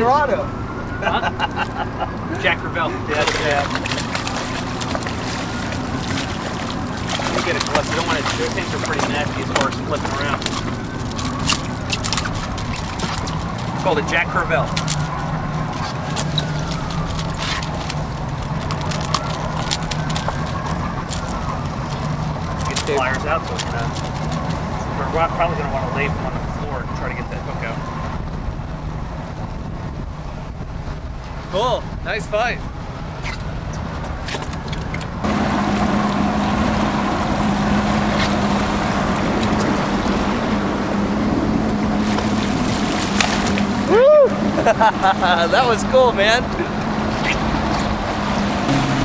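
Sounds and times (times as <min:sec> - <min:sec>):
wind and water noise: 0:00.0 - 0:49.0
outboard motor idling: 0:02.4 - 0:24.4, 0:41.0 - 0:49.0
wind on microphone: 0:27.4 - 0:44.7.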